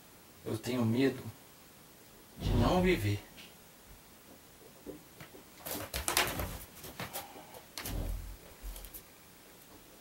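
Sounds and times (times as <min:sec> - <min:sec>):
short scraping noises: 0:02.4 - 0:03.1.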